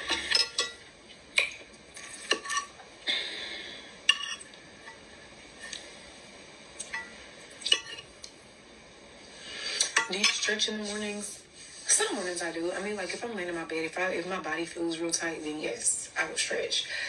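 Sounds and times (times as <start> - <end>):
dishes and cutlery clinking: 0.0 - 0.8, 1.5 - 2.8, 4.1 - 5.0
low background hiss: 0.0 - 17.0.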